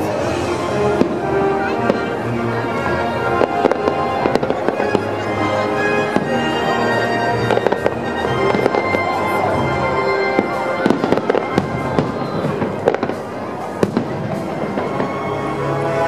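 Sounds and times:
fireworks bangs and crackles: 0.0s - 16.0s
music: 0.0s - 16.0s.

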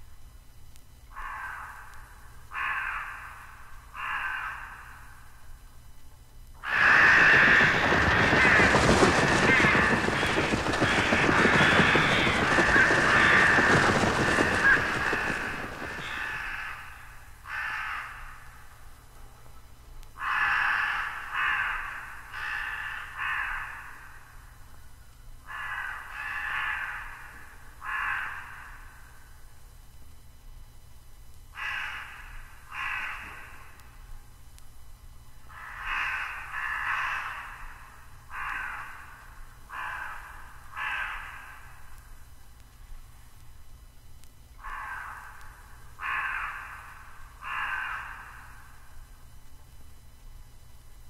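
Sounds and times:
crows cawing: 1.1s - 5.4s, 6.6s - 18.8s, 20.2s - 24.4s, 25.4s - 29.1s, 31.5s - 33.9s, 35.4s - 42.0s, 44.6s - 48.9s
loud rushing noise: 6.6s - 16.7s.

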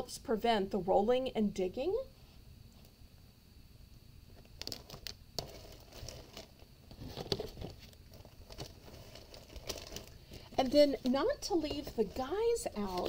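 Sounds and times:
plastic wrap crinkling: 4.5s - 13.0s.

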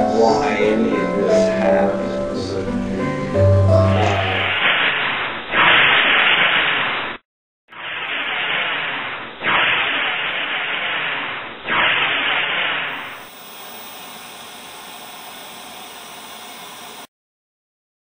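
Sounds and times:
static hiss: 7.8s - 17.1s.

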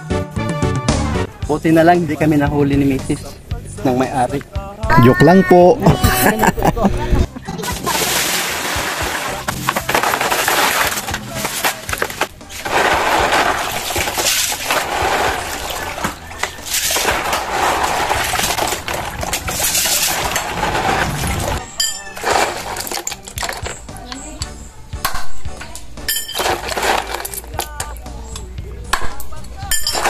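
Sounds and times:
hands swishing snails in water: 12.5s - 21.6s.

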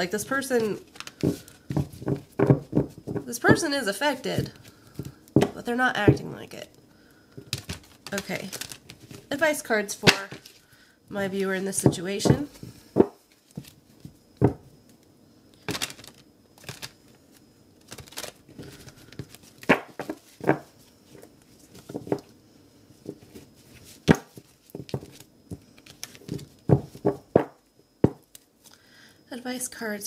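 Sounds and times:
cards being shuffled: 0.5s - 3.3s, 7.4s - 9.3s, 15.6s - 17.0s, 17.8s - 22.3s, 23.0s - 27.5s.

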